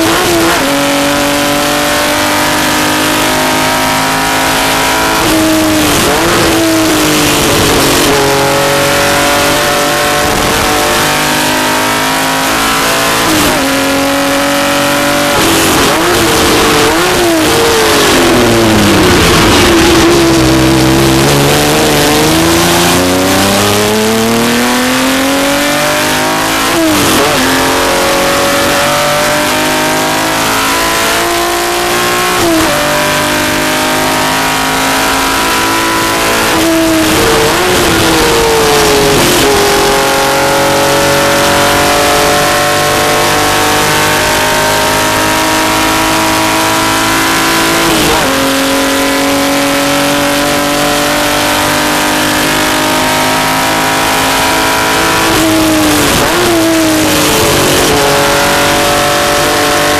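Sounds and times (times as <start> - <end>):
race car engine accelerating: 0.0 - 59.9.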